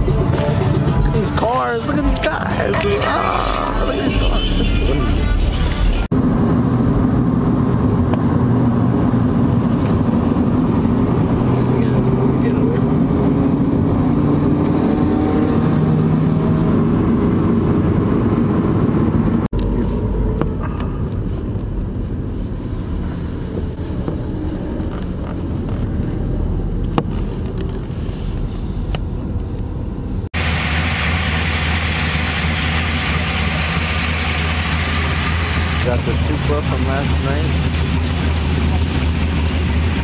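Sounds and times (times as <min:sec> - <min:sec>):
car driving on road: 0:00.0 - 0:40.0
car engine noise: 0:00.0 - 0:40.0
car engine idling: 0:19.6 - 0:40.0.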